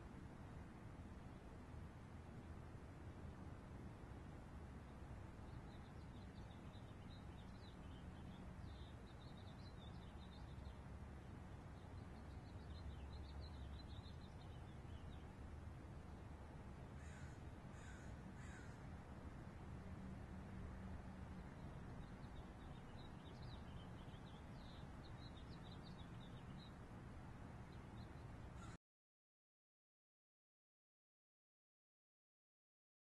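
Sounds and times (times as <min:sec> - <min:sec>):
small birds twittering: 0:04.8 - 0:16.2, 0:16.8 - 0:19.0, 0:21.3 - 0:26.9, 0:27.6 - 0:28.8
short bird calls: 0:17.0 - 0:18.9.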